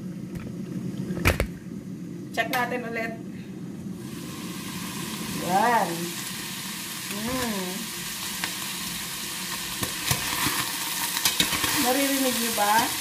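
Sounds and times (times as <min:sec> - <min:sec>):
meat sizzling in a pot: 0:04.0 - 0:13.0.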